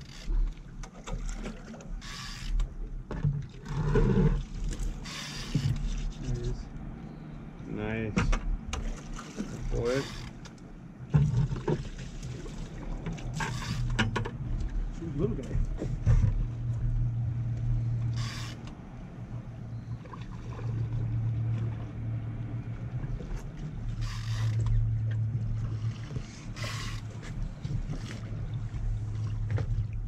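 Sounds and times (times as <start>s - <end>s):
boat motor idling: 4.4s - 7.3s, 12.7s - 30.0s.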